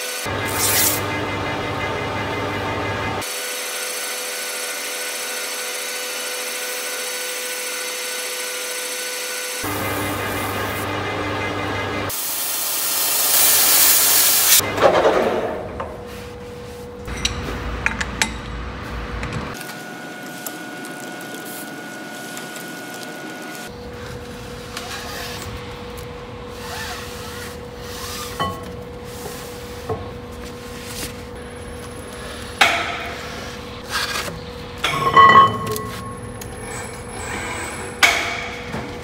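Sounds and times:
lathe hum: 0.0 - 14.6.

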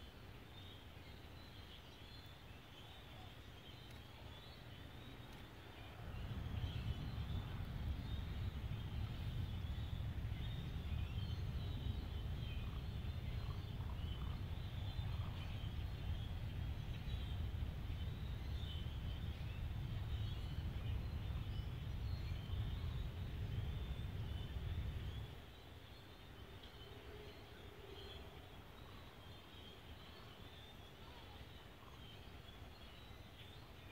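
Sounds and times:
steady low rumble: 5.7 - 25.5.

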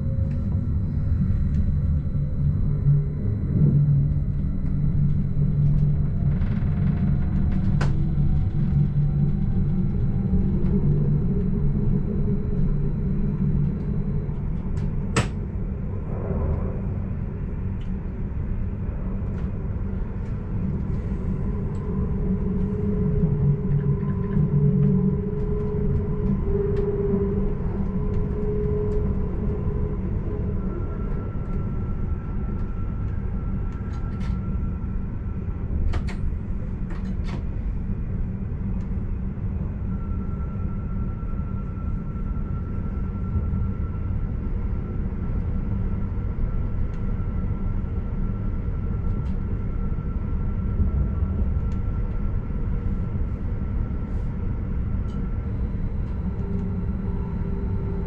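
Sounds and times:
faint steady tones: 37.8 - 58.0.

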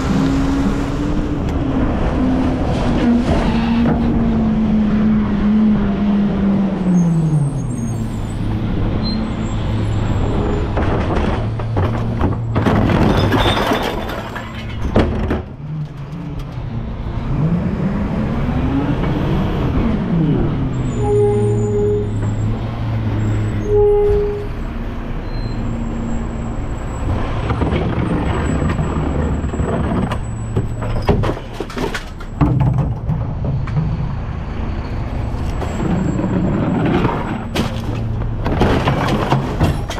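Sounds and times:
short beeps: 21.0 - 22.2.

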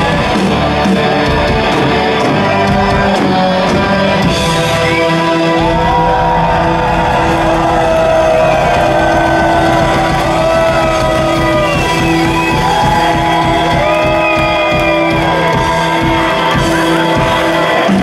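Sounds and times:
electric guitars and bass: 0.0 - 18.0
fast drumming: 0.0 - 18.0
crowd shouting: 4.8 - 18.0.

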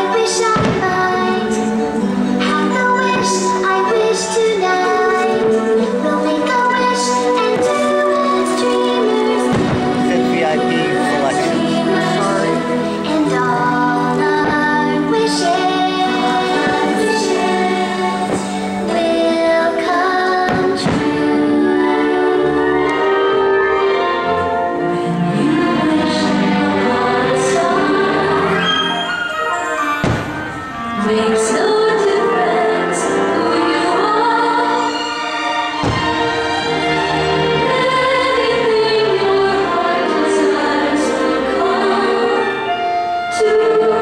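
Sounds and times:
choir music with held chords: 0.0 - 44.0
firework bangs: 0.3 - 2.0, 7.4 - 12.1, 14.0 - 19.1, 20.3 - 21.4, 30.0 - 30.8, 35.8 - 36.6
firework bang: 0.5 - 1.2, 9.5 - 10.2, 20.5 - 21.2, 30.0 - 30.6, 35.8 - 36.4.

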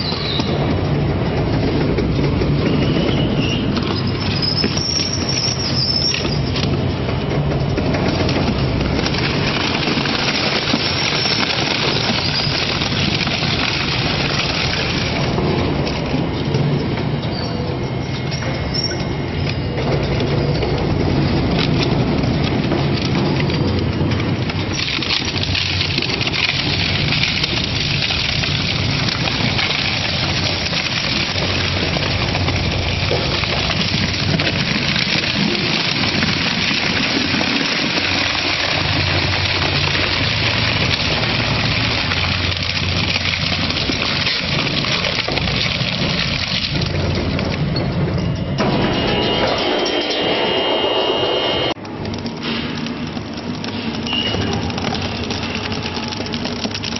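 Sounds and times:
shredder grinding material: 8.4 - 15.5, 24.7 - 47.2
machine hum: 46.9 - 56.3.

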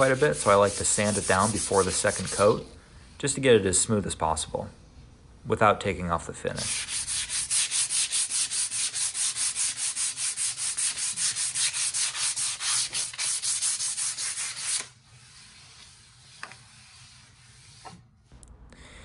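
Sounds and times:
sandpaper rubbing on wood: 0.0 - 2.7, 6.6 - 17.8.

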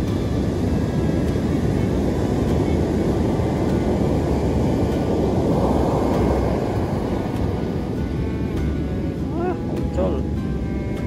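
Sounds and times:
heavy surf breaking on beach: 0.0 - 11.0.

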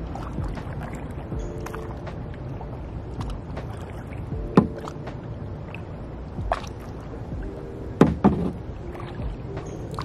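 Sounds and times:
paddle strokes dipping and dripping: 0.0 - 10.0
steady low rumble: 0.0 - 10.0
water splash: 0.0 - 10.0
sharp knock: 8.0 - 8.6.

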